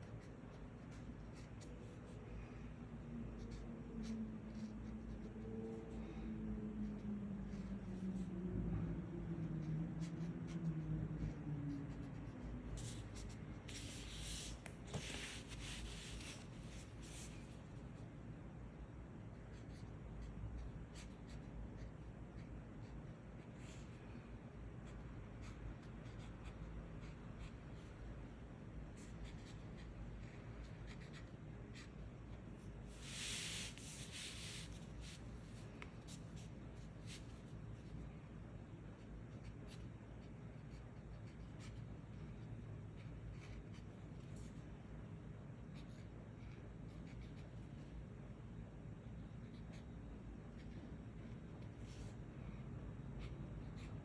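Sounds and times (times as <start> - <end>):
low steady hum: 0.0 - 54.0
brush pen scratching paper: 3.4 - 5.4, 10.0 - 17.5, 29.0 - 32.1, 32.7 - 37.9, 49.2 - 52.1, 53.2 - 54.0
brush pen stroking paper: 11.9 - 17.6, 32.9 - 37.4
paper sliding across table: 32.9 - 35.2.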